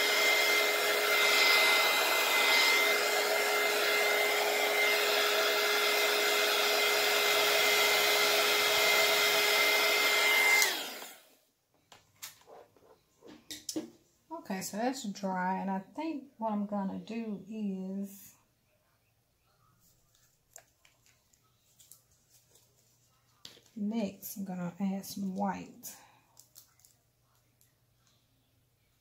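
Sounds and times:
heat gun whirring hiss: 0:00.0 - 0:11.2.

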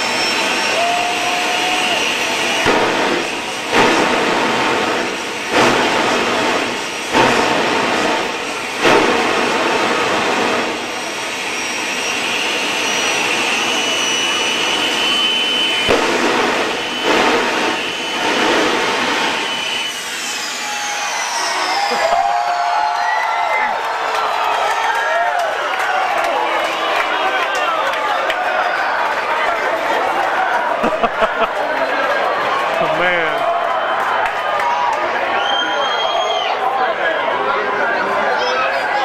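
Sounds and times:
exhaust rushing: 0:00.0 - 0:23.0
turbojet engine whine: 0:00.0 - 0:23.9.

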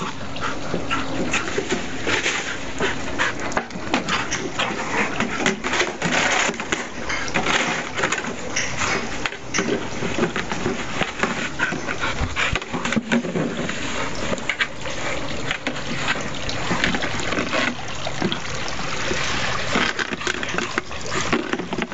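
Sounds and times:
plastic can knocking and scraping: 0:03.6 - 0:14.7, 0:19.6 - 0:21.9.

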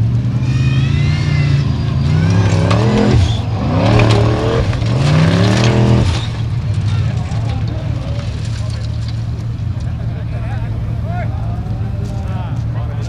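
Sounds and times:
buggy engine revving hard: 0:00.0 - 0:08.6.

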